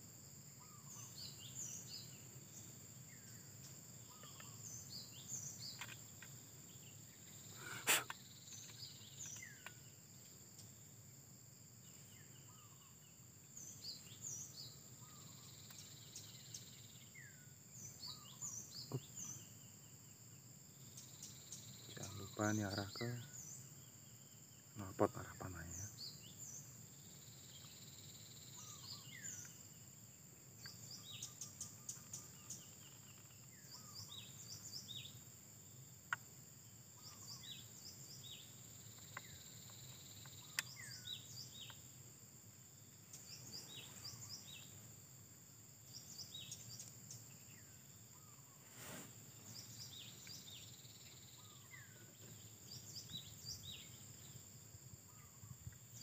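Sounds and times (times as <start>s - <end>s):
small birds chirping: 0.0s - 56.0s
faint clicks: 38.9s - 40.8s.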